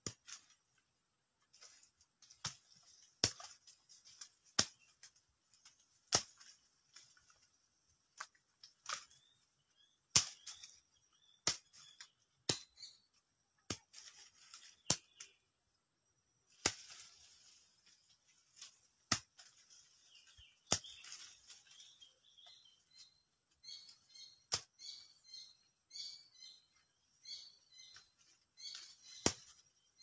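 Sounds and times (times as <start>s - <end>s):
fruit stalks snapping: 0.1s - 0.6s, 1.6s - 12.9s, 13.6s - 15.4s, 16.5s - 22.6s, 23.9s - 24.8s, 28.7s - 29.8s.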